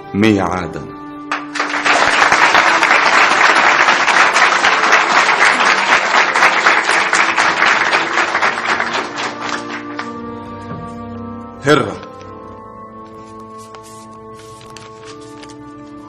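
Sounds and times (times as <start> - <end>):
audience applauding: 1.3 - 10.2.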